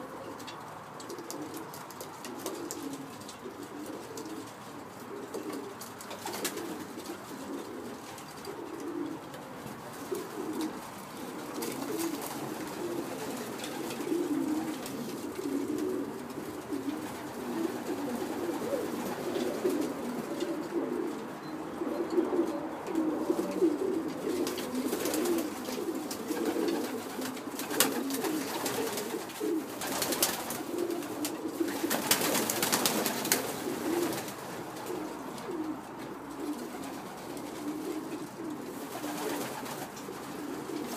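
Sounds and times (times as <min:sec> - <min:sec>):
pigeons cooing: 0:00.0 - 0:40.9.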